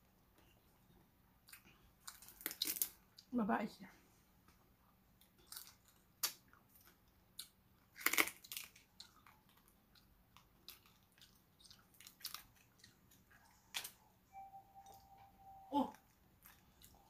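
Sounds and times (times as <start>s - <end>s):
close-up eating sounds: 0.2s - 3.3s, 4.4s - 15.0s, 15.8s - 17.0s
crab shells cracking: 2.0s - 3.0s, 5.4s - 12.9s.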